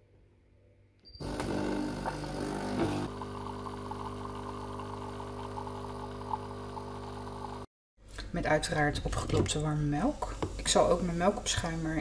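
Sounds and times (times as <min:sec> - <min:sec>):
coffee grinder running: 0:01.2 - 0:07.6
coffee pouring into mug: 0:01.2 - 0:07.6
brewing pump humming: 0:01.2 - 0:07.7.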